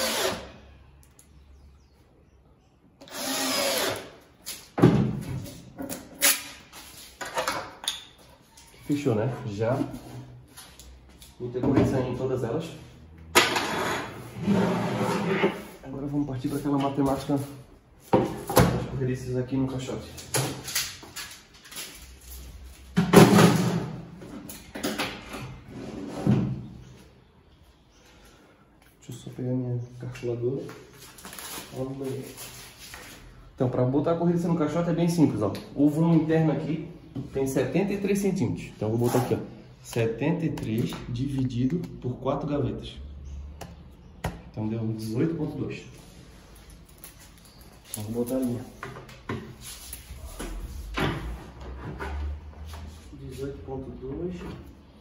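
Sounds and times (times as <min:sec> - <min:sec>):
cordless drill driving screw: 0:00.0 - 0:00.5, 0:03.0 - 0:04.2.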